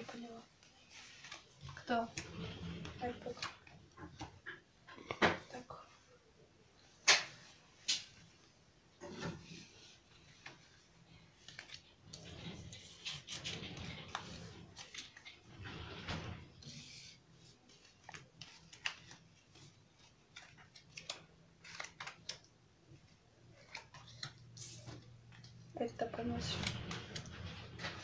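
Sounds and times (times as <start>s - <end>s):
cards sliding and rustling: 0.8s - 4.2s, 9.2s - 15.5s, 16.1s - 22.5s, 23.5s - 25.6s
playing cards clicking and snapping: 17.8s - 22.6s.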